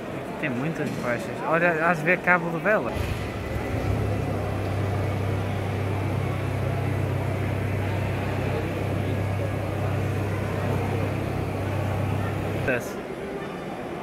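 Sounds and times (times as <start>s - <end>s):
background noise: 0.0s - 14.0s
machine humming: 2.9s - 13.0s.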